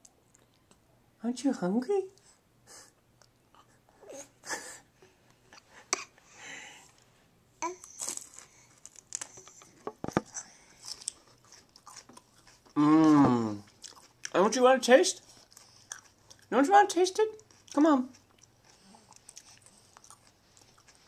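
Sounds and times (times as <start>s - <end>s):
baby chewing celery crunches: 7.6s - 21.0s.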